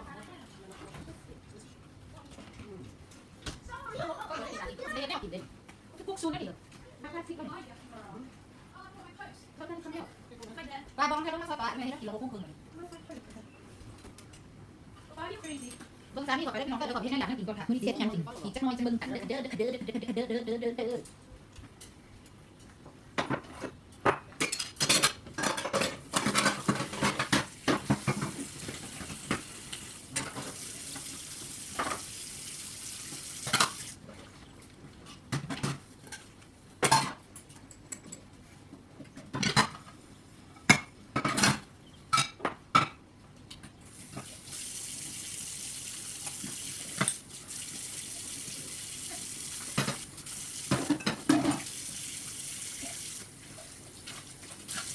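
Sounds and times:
dishes and cutlery clattering: 23.2s - 28.4s, 50.7s - 51.7s.

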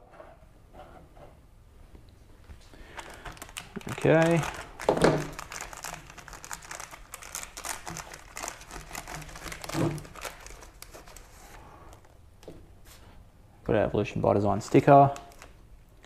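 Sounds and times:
plastic bag crinkling: 2.9s - 12.1s, 14.6s - 15.6s.

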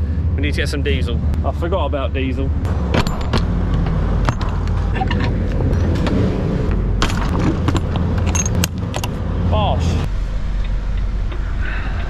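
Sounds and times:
metal locking bar clanking: 7.0s - 9.2s.

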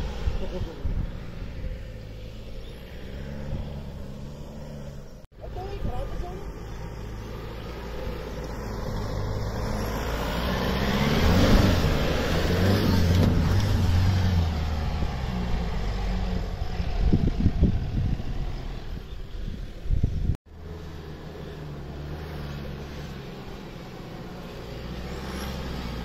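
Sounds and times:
diesel engine revving hard: 8.2s - 19.0s, 24.3s - 26.0s.

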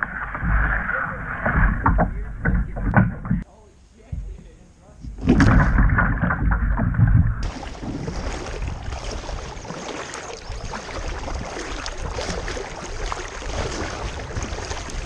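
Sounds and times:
water washing: 6.7s - 15.0s
kayak paddle splashing in water: 7.4s - 15.0s.

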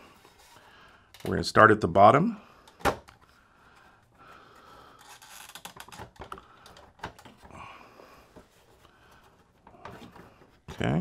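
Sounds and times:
clicks and scraping of plastic: 4.9s - 7.6s.

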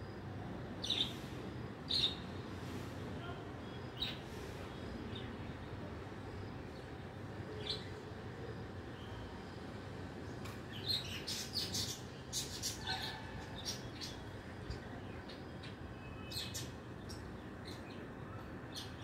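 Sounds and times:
birds chirping: 10.2s - 19.0s.

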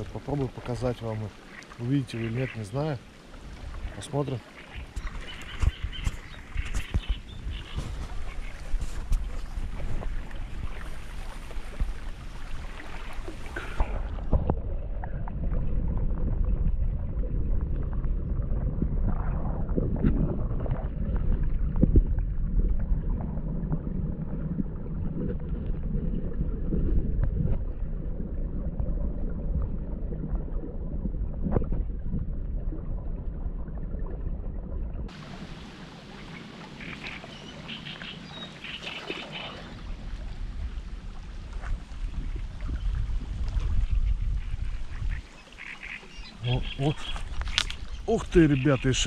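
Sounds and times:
wind in the reeds: 0.0s - 22.2s, 35.1s - 49.0s
muffled underwater sloshing: 0.0s - 49.0s.

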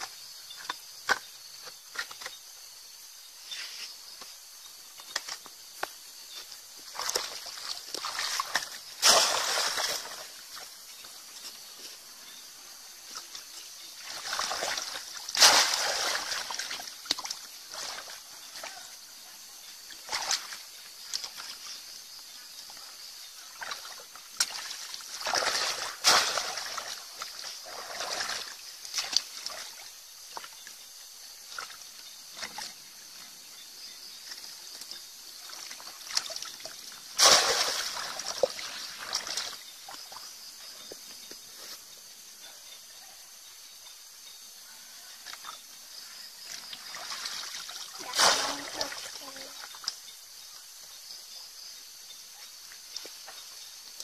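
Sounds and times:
shallow water splashing: 6.8s - 10.8s, 13.9s - 18.5s, 23.5s - 29.8s, 35.4s - 40.3s, 46.4s - 49.8s.

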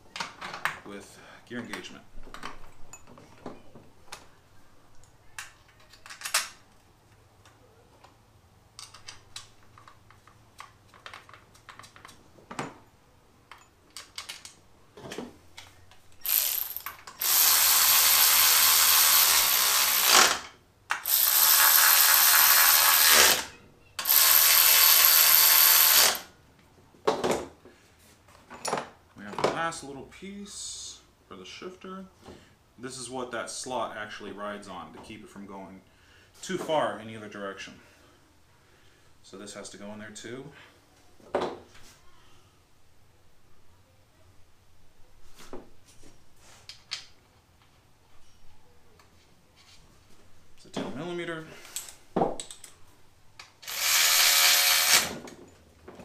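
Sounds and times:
metal parts clicking and knocking: 5.0s - 6.6s, 8.8s - 12.6s, 13.5s - 14.6s, 15.6s - 23.4s, 51.7s - 52.8s
cordless power tool running: 16.2s - 26.3s, 53.6s - 55.2s.

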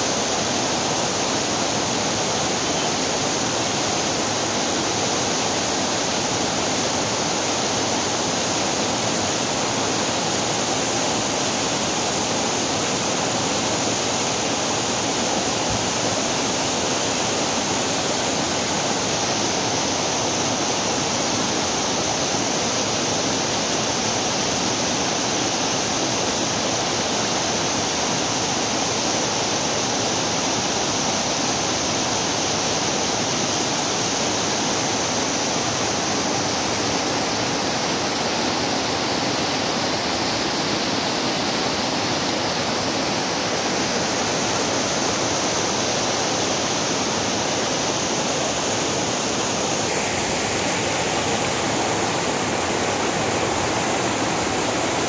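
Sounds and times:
waterfall rushing over boulders: 0.0s - 55.0s.

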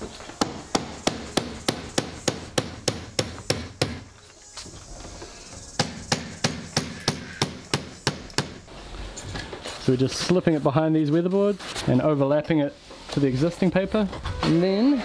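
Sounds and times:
hammer striking: 0.4s - 4.1s, 5.8s - 8.6s.

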